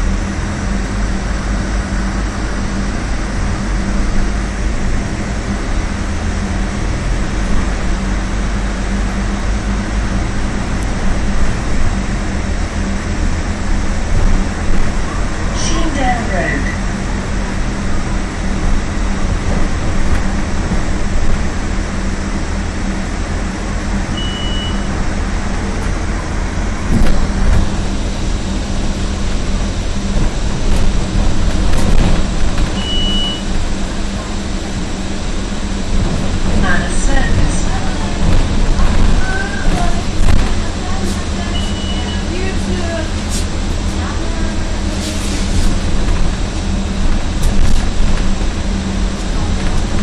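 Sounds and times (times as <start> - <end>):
bus diesel engine drone: 0.0 - 50.0
road and tyre rumble: 0.0 - 50.0
short high beep: 24.2 - 24.9, 32.8 - 33.5, 41.6 - 42.3.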